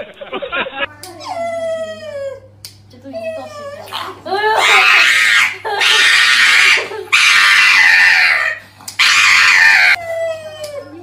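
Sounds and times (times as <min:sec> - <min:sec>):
dog screaming: 0:03.9 - 0:10.0.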